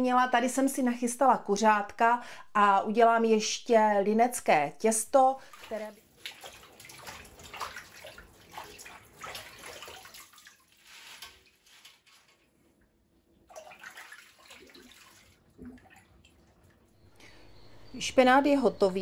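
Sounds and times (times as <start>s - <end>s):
water splashing in a sink: 5.2s - 12.5s, 13.4s - 17.0s.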